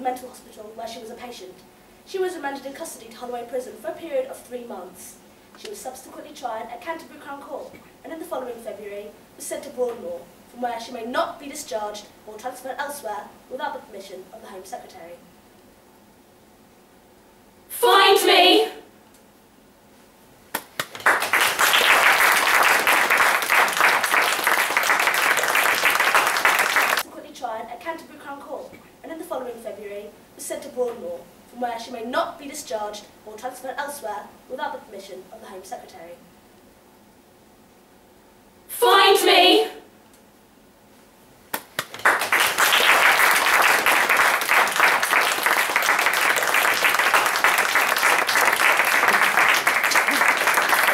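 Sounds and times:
single claps: 20.5s - 27.0s, 41.5s - 50.9s
audience applauding: 20.8s - 27.0s, 41.8s - 50.9s.

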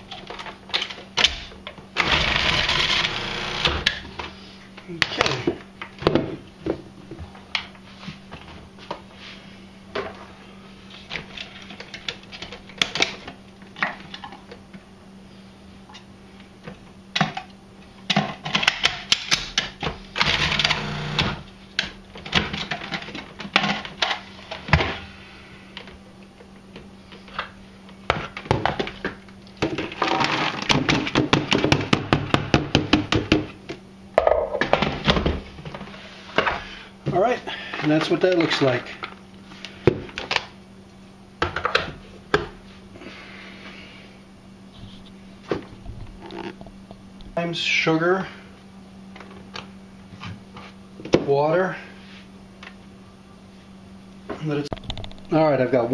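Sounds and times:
food processor chopping in bursts: 2.0s - 4.0s, 20.2s - 21.5s.

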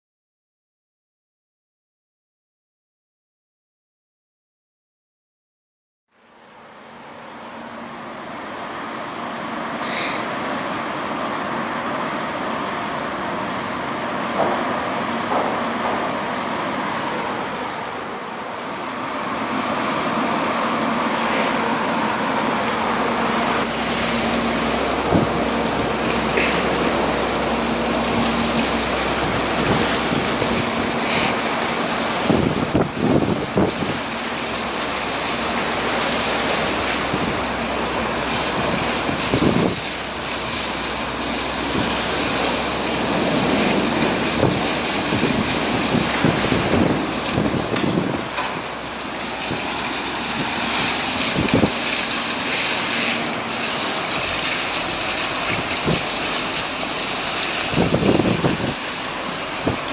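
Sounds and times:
faint engine hum: 6.1s - 59.9s
water rushing: 6.2s - 59.9s
wind gusts on microphone: 32.0s - 34.1s, 38.4s - 39.9s, 41.6s - 48.4s, 49.4s - 51.8s, 57.7s - 58.8s.

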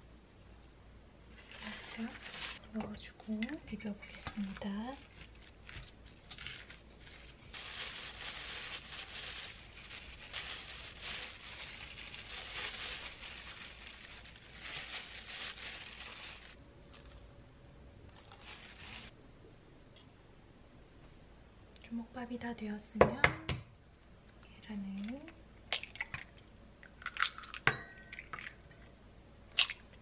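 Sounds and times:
plastic glove crinkling: 1.3s - 17.4s, 18.1s - 19.2s
spoon mixing in metal bowl: 1.6s - 7.6s.

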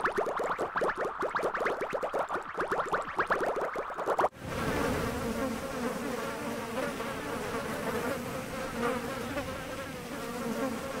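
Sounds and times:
insect-like buzzing drone: 4.2s - 11.0s.

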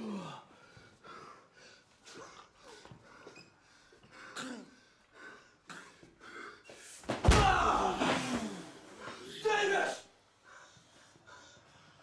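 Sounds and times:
loud falling cry: 7.2s - 8.8s.

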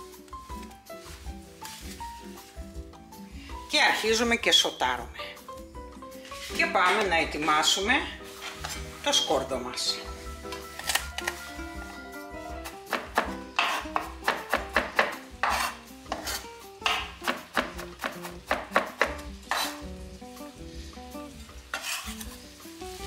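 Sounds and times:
onions sizzling in hot oil: 0.5s - 4.3s, 6.2s - 23.0s
kitchen utensil scraping and knocking: 6.3s - 9.4s, 12.9s - 17.4s, 18.8s - 19.8s, 21.7s - 22.4s.

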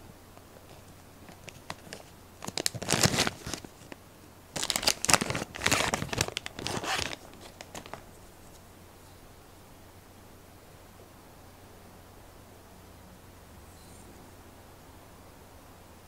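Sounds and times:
plastic sleeve crinkling: 0.6s - 8.6s.

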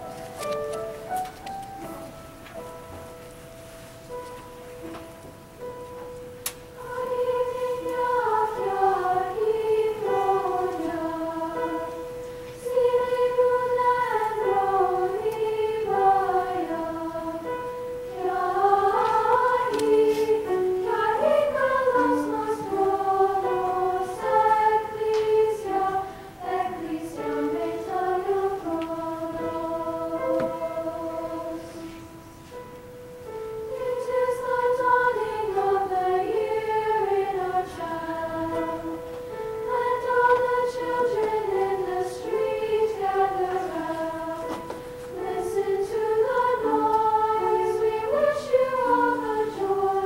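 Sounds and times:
women's choir singing: 6.7s - 32.6s, 33.6s - 50.0s.

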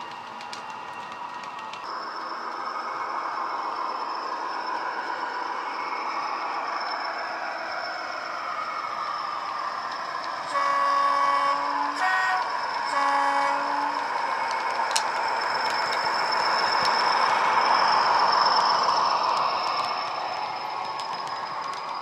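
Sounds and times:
two-tone locomotive horn: 10.5s - 14.5s.

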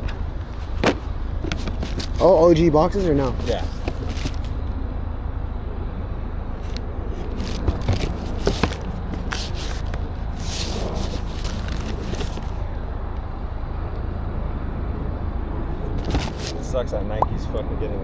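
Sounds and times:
cardboard box rustling and scraping: 0.0s - 4.6s, 6.6s - 12.6s, 16.0s - 16.6s.

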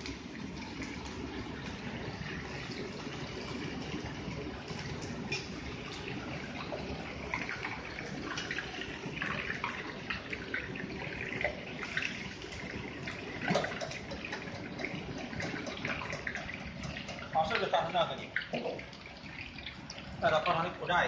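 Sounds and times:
meat sizzling in hot oil: 0.0s - 20.3s
tap running into pot: 13.4s - 17.6s.

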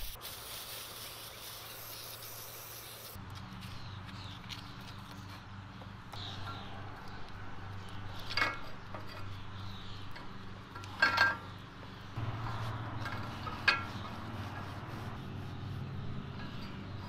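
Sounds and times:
metal scraping and wiping: 12.2s - 17.0s.

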